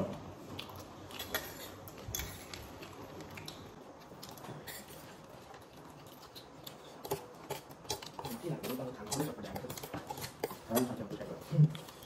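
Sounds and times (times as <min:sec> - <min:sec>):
utensils clinking on plates: 0:01.1 - 0:02.6.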